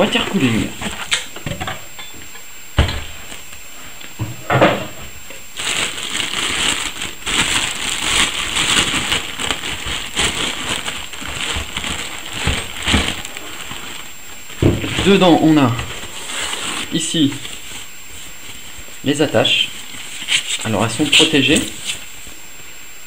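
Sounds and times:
plastic bag crinkling: 5.4s - 22.4s.

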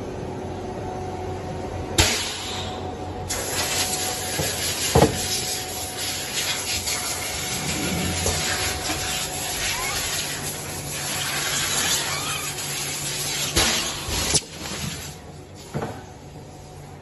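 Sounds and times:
machinery hiss and hum: 0.0s - 17.0s.

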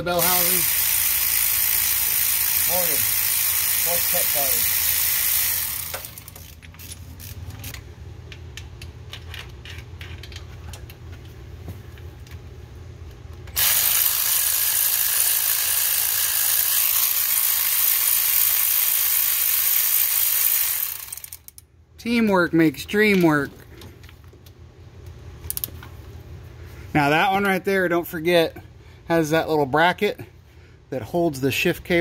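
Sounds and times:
hand tools clicking and rattling: 0.2s - 7.8s.

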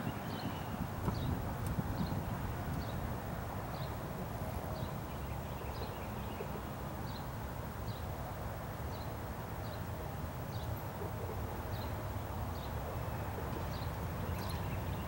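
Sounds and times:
low outdoor rumble: 0.0s - 7.7s.

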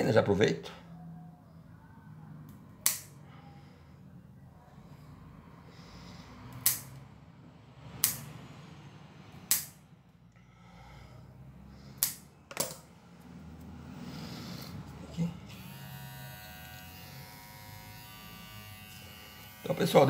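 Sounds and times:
nail clippers snipping claws: 2.8s - 3.1s, 6.5s - 7.0s, 8.0s - 8.2s, 9.5s - 9.8s, 12.0s - 12.2s.

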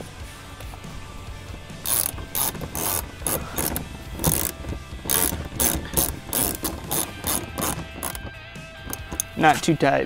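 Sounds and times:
ratchet wrench clicking: 1.8s - 9.4s.

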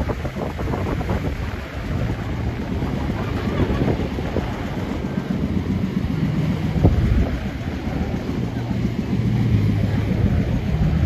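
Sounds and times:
wind rumbling on microphone: 0.0s - 11.0s.

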